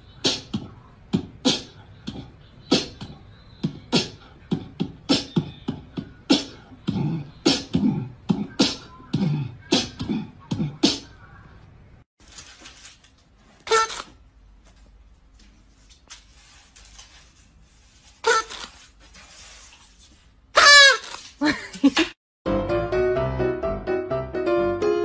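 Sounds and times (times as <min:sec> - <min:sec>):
rhythmic beatboxing: 0:00.0 - 0:11.2.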